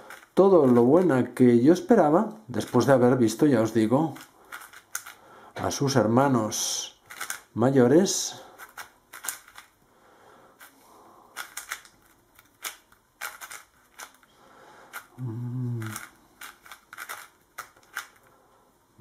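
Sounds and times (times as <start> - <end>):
plastic puzzle cube clacking: 0.0 - 1.1, 3.9 - 5.2, 7.0 - 7.5, 8.6 - 9.8, 10.6 - 14.3, 14.9 - 18.3.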